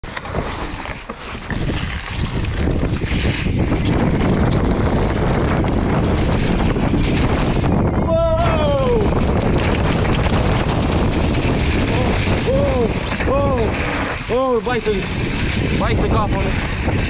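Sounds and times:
bike tyres rolling on dirt: 0.0s - 17.0s
wind on microphone: 0.0s - 17.0s
clicks and rattles: 9.1s - 14.3s.

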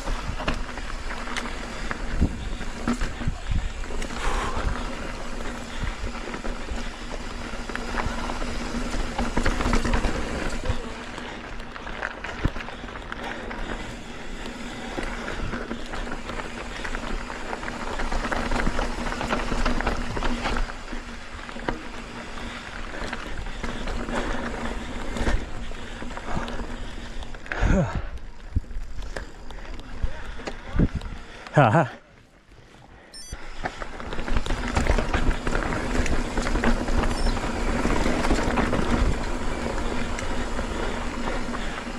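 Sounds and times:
wind rushing over microphone: 0.0s - 11.0s
bike rattles and knocks: 0.0s - 31.2s, 33.5s - 41.9s
bike tyres on dirt trail: 0.0s - 41.9s.

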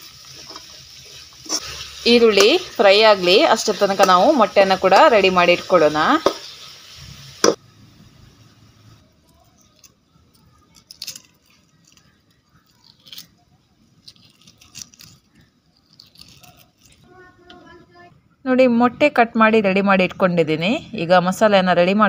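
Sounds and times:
onions sizzling in oil: 0.0s - 13.0s
eggshells crackling: 9.2s - 17.7s.

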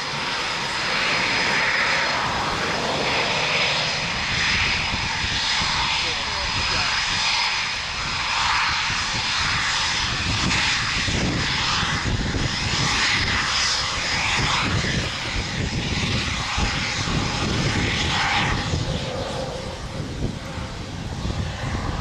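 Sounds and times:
jet engines roaring: 0.0s - 22.0s
low rumble: 8.9s - 22.0s.

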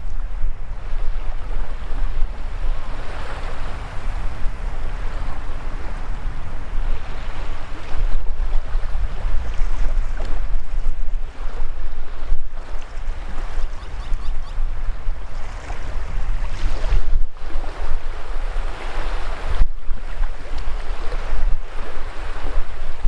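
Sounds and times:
small waves washing on sand: 0.0s - 23.0s
wind on microphone: 0.0s - 23.0s.

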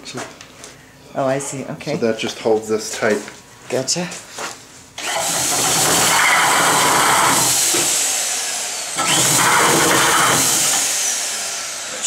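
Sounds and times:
blade shaving wood: 5.0s - 12.0s
drill motor under load: 5.0s - 12.0s.

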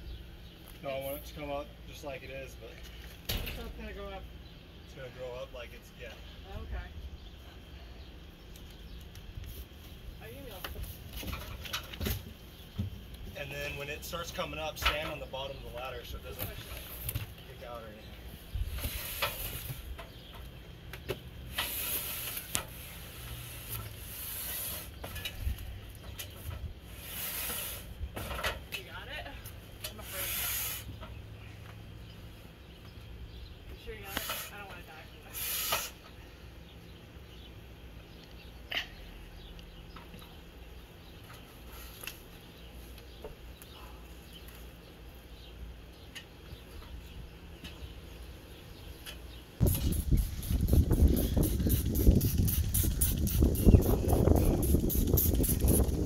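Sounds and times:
scraping hiss: 18.6s - 20.2s, 21.5s - 25.4s, 26.9s - 28.3s, 29.9s - 31.2s, 34.0s - 36.2s.

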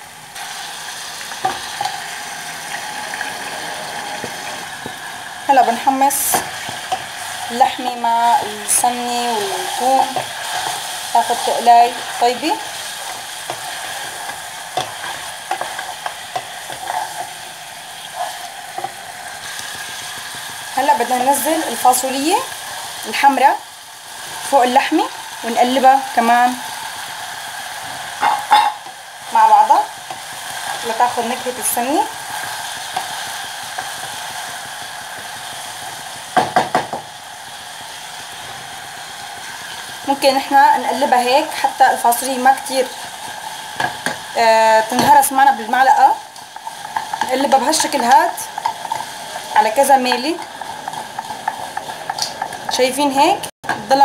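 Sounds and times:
meat and garlic sizzling: 0.0s - 54.0s
wooden spoon knocking against pot: 36.4s - 37.1s.

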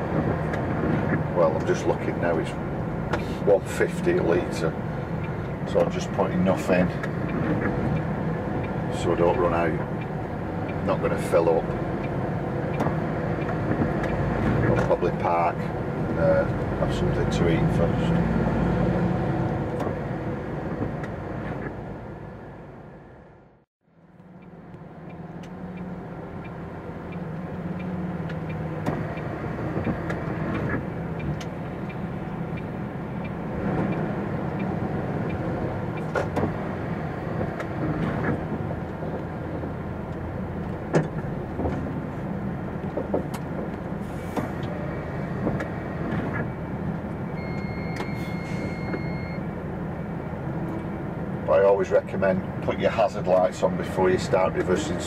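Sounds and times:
steady high beep: 47.4s - 49.4s.

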